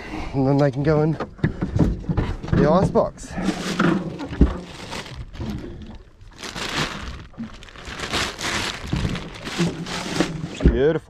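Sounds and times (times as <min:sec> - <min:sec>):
plastic bags rustling: 0:03.3 - 0:10.7.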